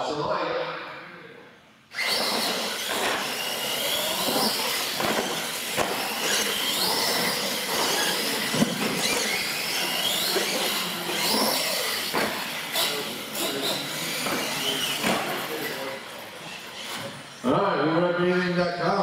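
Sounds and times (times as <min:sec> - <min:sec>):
rc trucks motor whine: 0:01.9 - 0:17.4.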